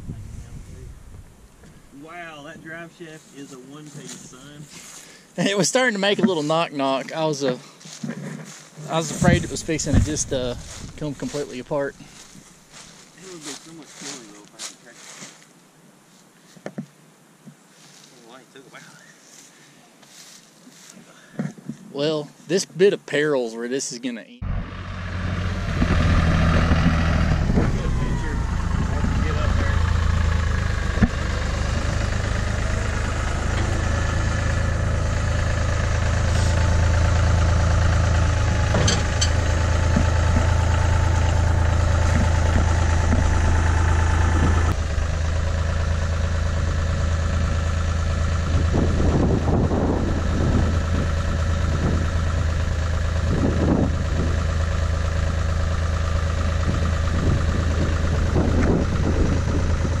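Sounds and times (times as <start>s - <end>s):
tractor engine running: 0.0s - 14.3s, 24.4s - 60.0s
loader shoving metal: 25.2s - 44.7s.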